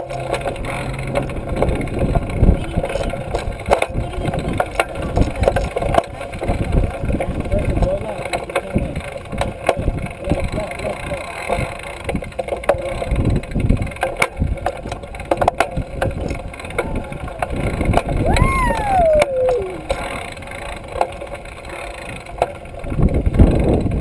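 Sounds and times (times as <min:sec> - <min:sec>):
bike rattles and clicks: 0:00.0 - 0:24.0
wind on microphone: 0:01.4 - 0:08.0, 0:13.0 - 0:15.1, 0:15.8 - 0:20.6, 0:22.2 - 0:24.0
child calling out: 0:18.2 - 0:19.9.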